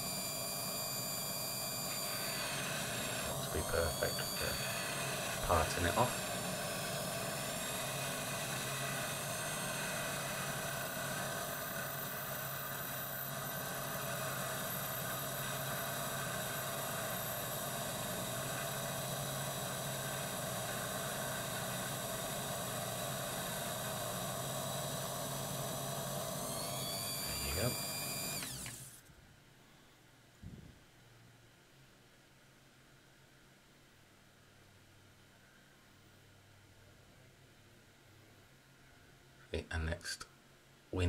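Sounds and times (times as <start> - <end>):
lathe humming with high whine: 0.0 - 29.0.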